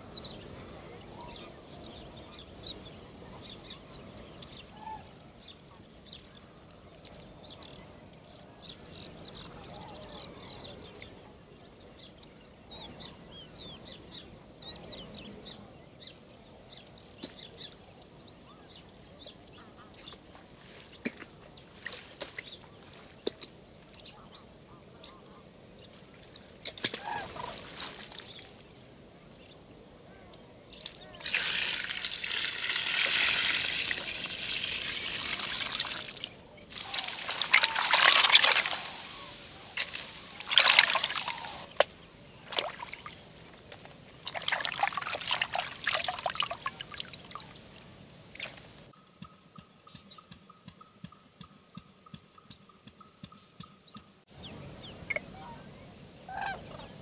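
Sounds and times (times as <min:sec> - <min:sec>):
water pouring from bucket: 0:30.9 - 0:41.8, 0:42.5 - 0:43.1, 0:44.2 - 0:47.7
hands sloshing in water: 0:31.2 - 0:41.9, 0:42.5 - 0:43.2, 0:44.2 - 0:47.6
faint chirps: 0:35.9 - 0:43.2.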